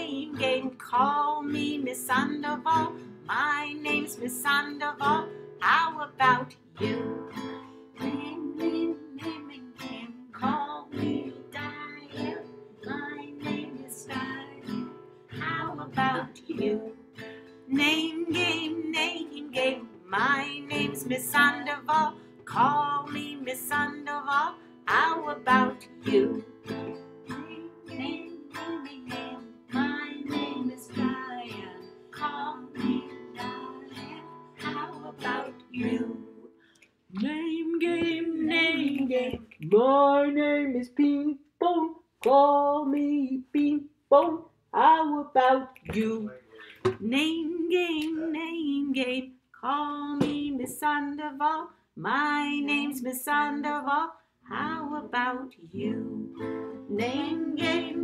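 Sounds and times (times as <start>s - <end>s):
women singing: 0.0s - 17.1s, 17.7s - 36.5s, 37.1s - 58.0s
acoustic string instrument strummed: 0.0s - 36.6s, 54.5s - 58.0s.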